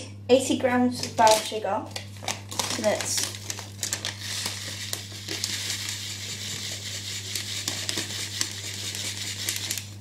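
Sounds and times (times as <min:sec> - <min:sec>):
sugar pouring into glass bowl: 0:02.7 - 0:09.7.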